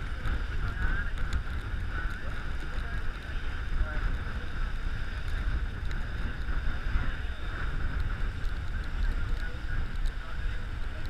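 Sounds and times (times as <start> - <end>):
boat engine and water rumble: 0.0 - 11.0
wind buffeting microphone: 0.0 - 11.0.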